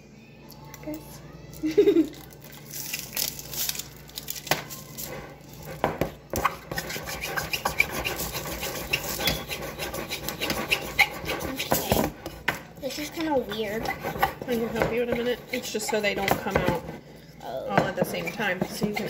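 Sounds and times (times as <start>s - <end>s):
plastic jar rubbing and scraping: 6.4s - 17.0s.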